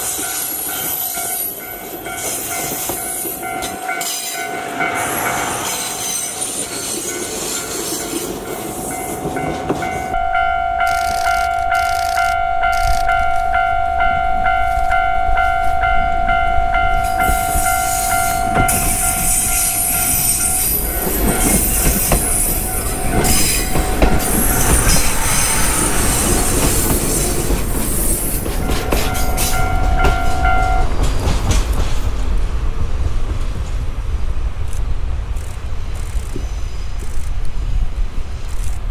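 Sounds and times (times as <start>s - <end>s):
train wheels clattering on rails: 0.0s - 10.2s, 17.0s - 38.9s
level-crossing alarm tone: 8.8s - 26.7s.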